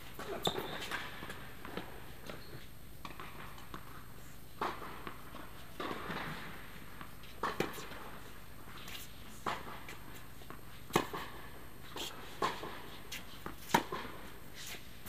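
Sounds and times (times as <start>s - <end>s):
tennis ball struck by rackets: 4.6s - 8.0s, 10.5s - 11.4s, 13.4s - 14.2s.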